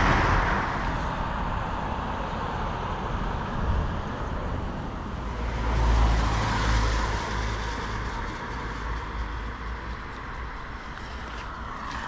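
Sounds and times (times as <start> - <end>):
passing vehicle: 0.0 - 12.0
tyres hissing on wet road: 5.2 - 12.0.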